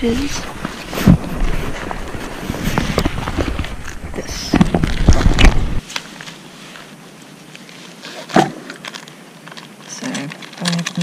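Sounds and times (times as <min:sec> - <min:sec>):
backpack fabric rustling: 0:00.0 - 0:07.0.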